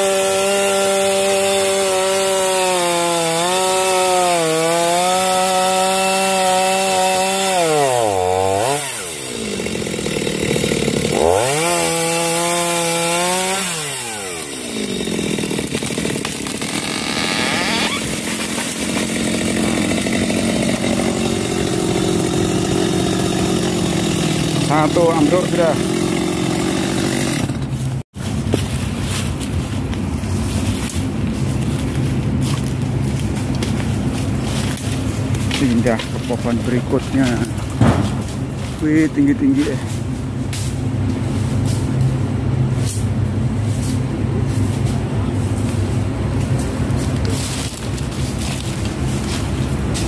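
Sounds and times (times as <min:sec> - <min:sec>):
tree falling: 0:00.0 - 0:24.8
chainsaw cutting wood: 0:00.0 - 0:28.7, 0:32.4 - 0:40.9.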